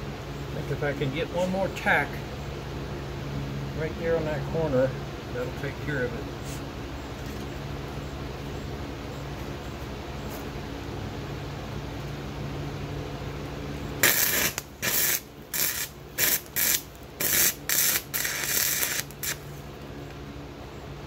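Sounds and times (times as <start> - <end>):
electric fan humming: 0.0 - 21.0
welding arc crackling and hissing: 14.0 - 19.6.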